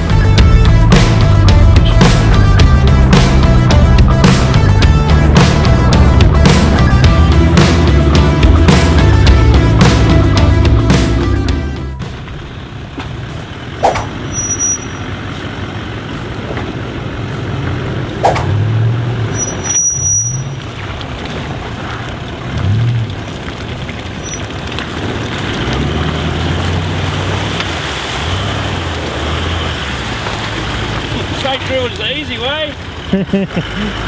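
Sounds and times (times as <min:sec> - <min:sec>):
engine revving: 0:00.0 - 0:12.3, 0:12.9 - 0:23.6, 0:24.6 - 0:34.0
tyres churning mud: 0:00.0 - 0:34.0
sharp knocks: 0:13.8 - 0:14.2.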